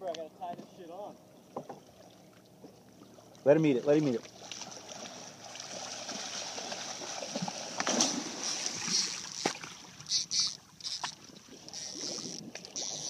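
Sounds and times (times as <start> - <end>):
water splashing against a boat: 0.1 - 13.0.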